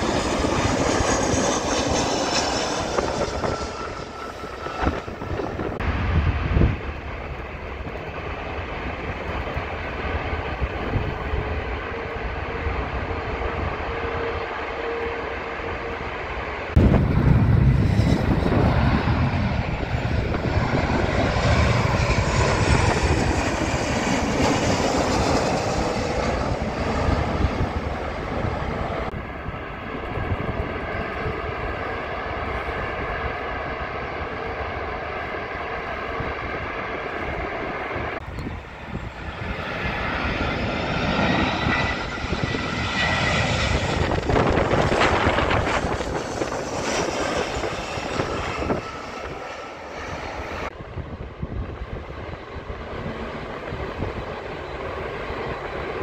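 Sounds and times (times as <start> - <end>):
jet airliner engine noise: 0.0 - 56.0
jet engine whine: 0.0 - 56.0.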